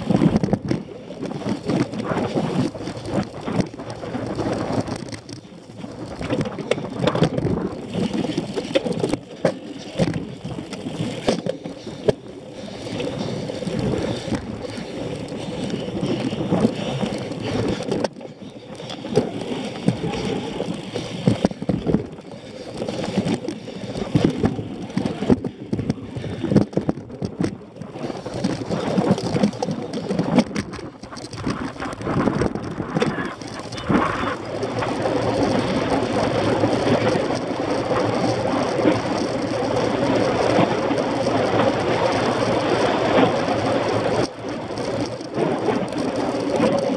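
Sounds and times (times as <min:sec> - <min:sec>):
bike knocks and rattles: 0:00.0 - 0:46.9
bike tyres rumbling on grass: 0:00.0 - 0:46.9
wind on microphone: 0:00.0 - 0:46.9.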